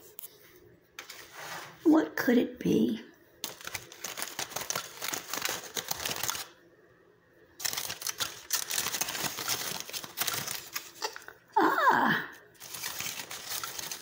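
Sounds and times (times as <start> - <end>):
aluminium foil crinkling: 3.4 - 6.6, 7.6 - 11.6, 12.4 - 14.0.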